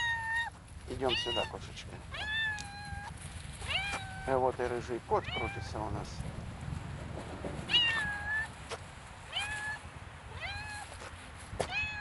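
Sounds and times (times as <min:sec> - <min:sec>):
cat meowing: 0:00.0 - 0:04.4, 0:05.2 - 0:05.8, 0:07.7 - 0:08.5, 0:09.3 - 0:10.9, 0:11.6 - 0:12.0.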